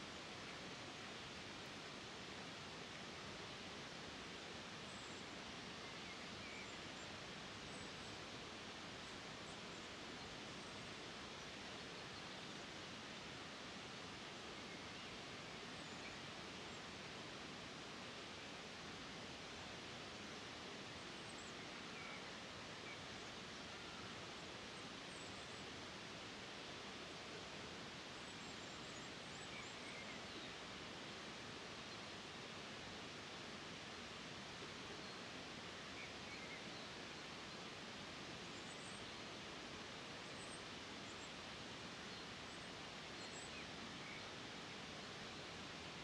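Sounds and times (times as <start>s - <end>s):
soft steady rushing hiss: 0.0s - 46.0s
faint bird chirps: 4.9s - 8.2s, 21.1s - 24.2s, 28.1s - 30.6s, 35.9s - 37.3s, 38.4s - 39.3s, 42.0s - 44.4s.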